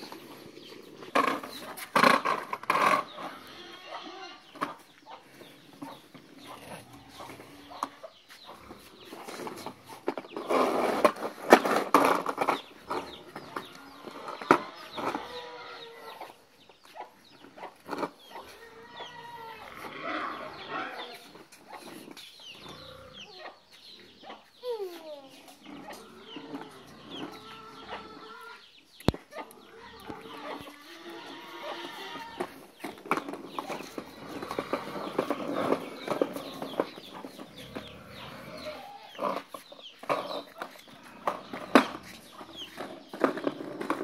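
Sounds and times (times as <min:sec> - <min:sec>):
rattling and scraping: 0:00.0 - 0:03.4, 0:08.6 - 0:15.6, 0:30.0 - 0:44.0
chicken clucking: 0:00.0 - 0:44.0.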